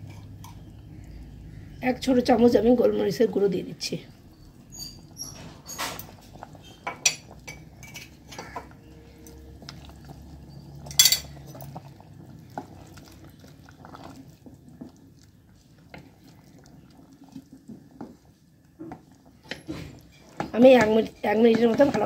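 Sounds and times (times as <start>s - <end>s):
utensils clinking against metal pot: 4.8s - 11.8s, 19.4s - 22.0s.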